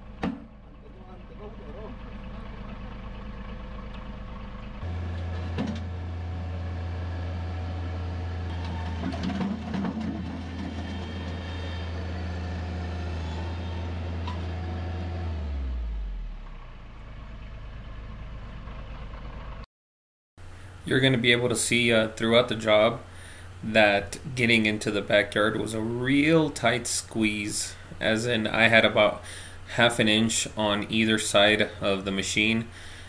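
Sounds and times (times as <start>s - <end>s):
loader engine running: 0.0s - 19.7s, 20.4s - 33.0s
bucket clanking and scraping: 8.6s - 11.4s.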